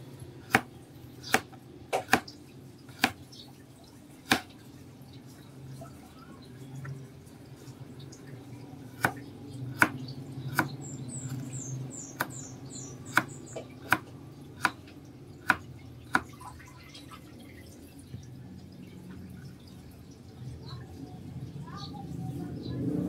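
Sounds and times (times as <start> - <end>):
knife chopping on plastic board: 0.5 - 2.3, 2.9 - 3.2, 4.3 - 4.5, 9.0 - 9.2, 9.8 - 11.4, 12.0 - 14.8, 15.4 - 16.4.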